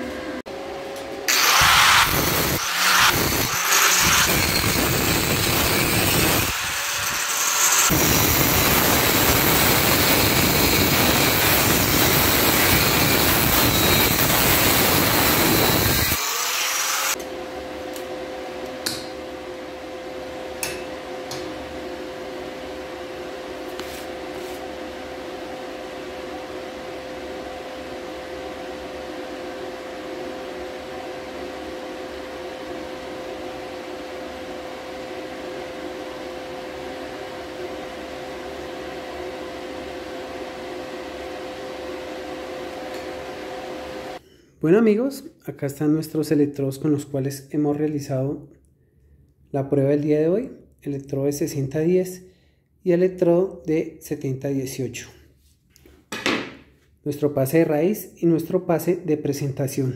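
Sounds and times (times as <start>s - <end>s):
angle grinder cutting steel: 1.3s - 17.2s.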